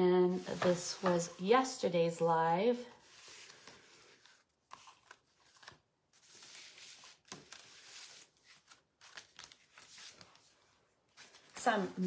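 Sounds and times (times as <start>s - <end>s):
paper cards rustling: 3.0s - 12.0s.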